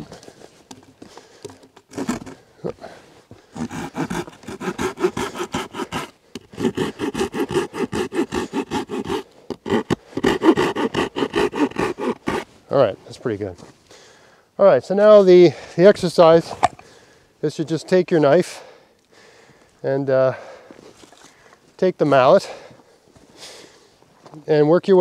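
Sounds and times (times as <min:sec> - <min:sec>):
knocks and scrapes: 0:00.0 - 0:02.4
saw cutting wood: 0:01.9 - 0:02.4, 0:03.6 - 0:12.5.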